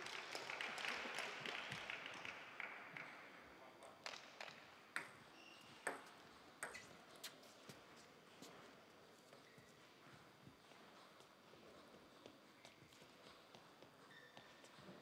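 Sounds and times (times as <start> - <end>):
faint hall noise: 0.0 - 15.0
table tennis ball bouncing: 4.0 - 7.0.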